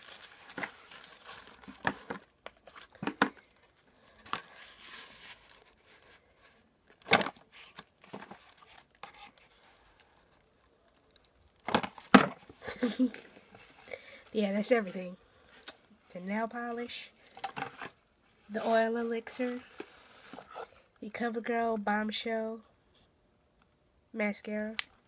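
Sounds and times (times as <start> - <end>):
tissue paper crinkling: 0.0 - 6.6.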